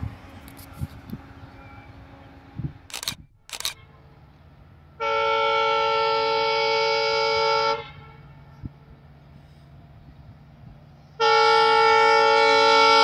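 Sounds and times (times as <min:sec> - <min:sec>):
short bursts of noise: 0:02.9 - 0:03.8
train horn blast: 0:05.0 - 0:08.6, 0:11.2 - 0:13.0.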